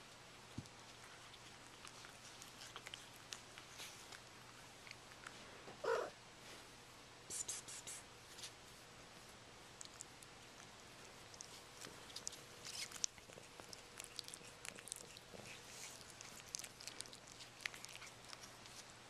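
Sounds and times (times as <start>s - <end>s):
cat licking kittens: 0.0s - 5.4s, 7.3s - 19.0s
kittens suckling wet clicking: 0.6s - 5.4s, 9.7s - 19.0s.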